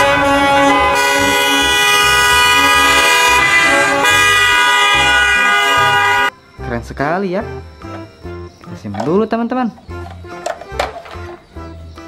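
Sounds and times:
bus horn blast: 0.0s - 6.3s.

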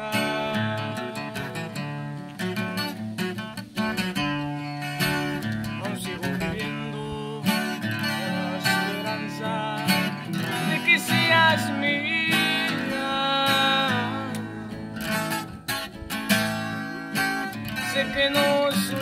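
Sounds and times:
young man singing: 0.0s - 2.2s, 4.6s - 15.4s, 17.7s - 19.0s
acoustic guitar strumming: 0.0s - 19.0s.

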